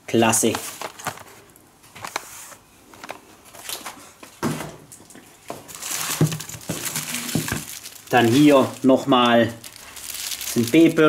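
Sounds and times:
cardboard rustling and scraping: 0.4 - 4.6, 5.6 - 8.8.

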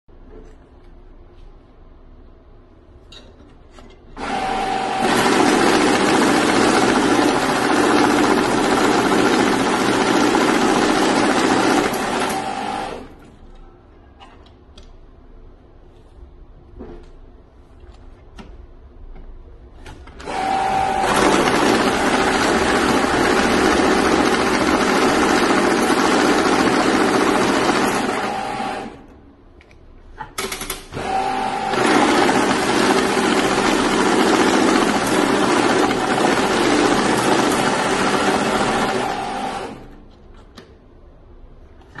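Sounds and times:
banknote counting machine whirring: 4.2 - 13.2, 20.2 - 29.1, 30.9 - 39.9
machine whine: 20.2 - 29.1.

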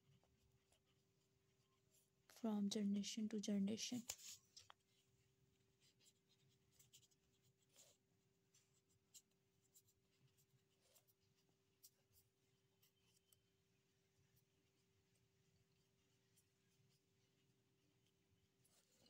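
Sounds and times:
pen scratching on paper: 4.1 - 13.4.

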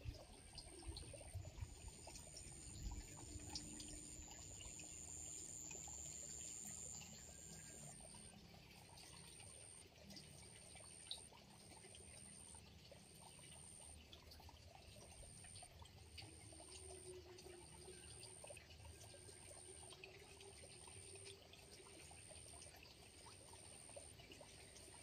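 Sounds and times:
faint trickling water: 0.0 - 25.0
high-pitched insect call: 1.2 - 8.3.

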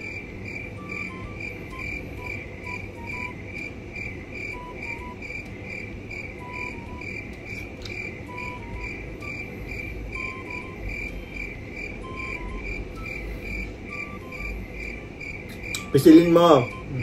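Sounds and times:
steady chirping pulse: 0.0 - 17.0
soft melody of held notes: 0.8 - 3.5, 4.5 - 5.5, 6.4 - 15.0.

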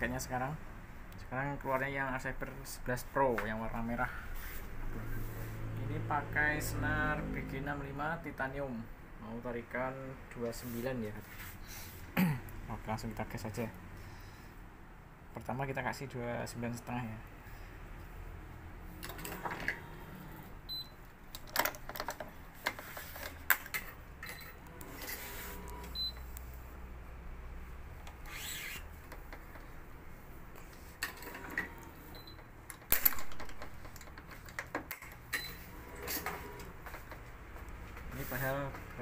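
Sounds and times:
short high beeps: 25.9 - 26.2.

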